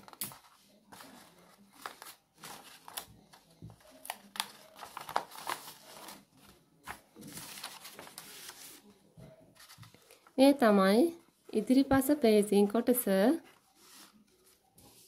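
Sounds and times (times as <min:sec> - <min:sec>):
paper rustling and crinkling: 0:00.0 - 0:10.4, 0:13.4 - 0:15.0.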